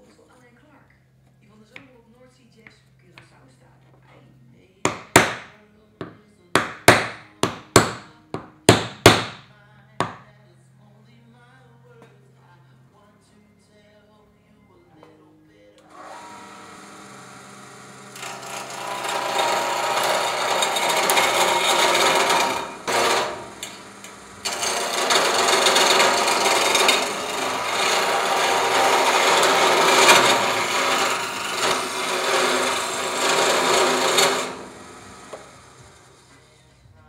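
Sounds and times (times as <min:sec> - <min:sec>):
chisel scraping spinning wood: 0:16.1 - 0:36.4.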